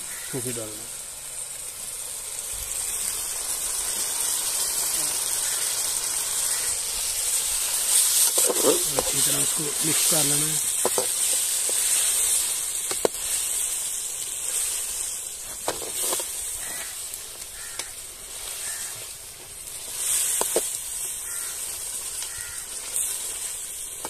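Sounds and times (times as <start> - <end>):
meat sizzling in pan: 0.0 - 24.0.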